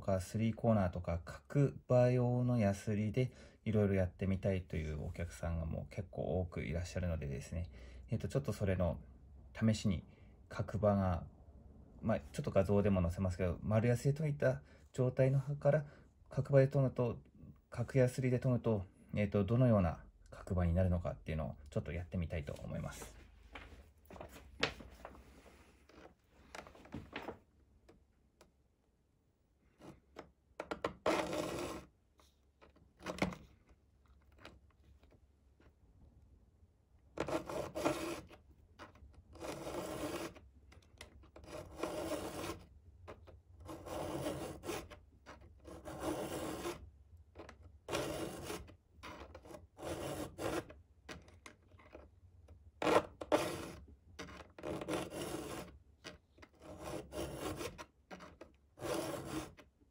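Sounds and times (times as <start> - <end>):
file rasping on steel: 31.0 - 31.9, 37.2 - 38.3, 39.4 - 40.4, 41.4 - 42.7, 43.6 - 45.0, 45.6 - 46.8, 47.9 - 50.7, 52.8 - 53.8, 54.6 - 55.8, 56.6 - 59.6.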